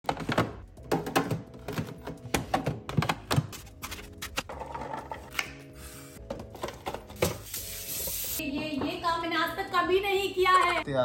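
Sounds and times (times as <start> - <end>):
kitchen knocks and clunks: 0.0 - 3.6, 6.2 - 7.5.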